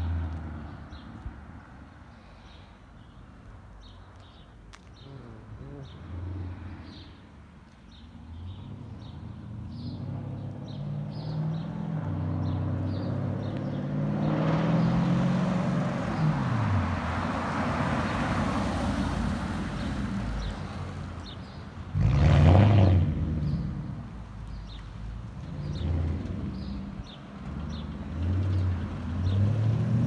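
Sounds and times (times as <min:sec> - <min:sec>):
car accelerating and passing by: 0:08.4 - 0:21.2, 0:21.9 - 0:23.9, 0:25.4 - 0:30.0.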